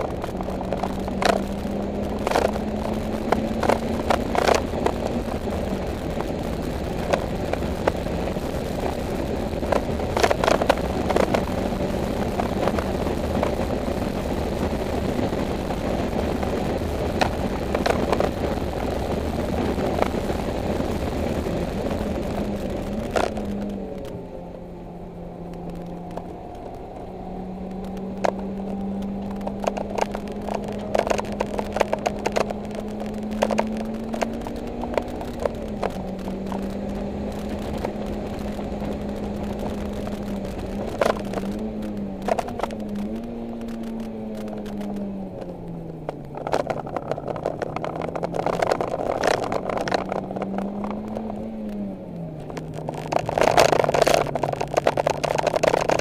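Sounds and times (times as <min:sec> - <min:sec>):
clicks and rattles: 0:00.0 - 0:02.7, 0:27.8 - 0:56.0
car engine running hard: 0:00.0 - 0:56.0.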